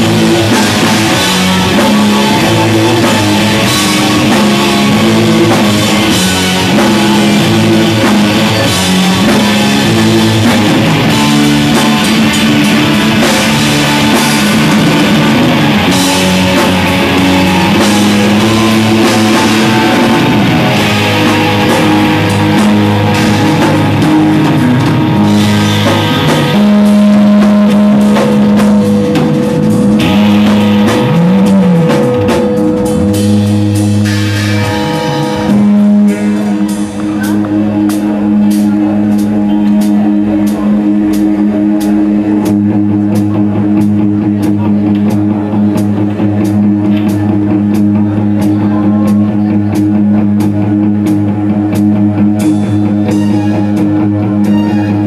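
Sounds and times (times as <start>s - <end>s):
bent guitar note: 0.0s - 55.0s
live rock band playing: 0.0s - 55.0s.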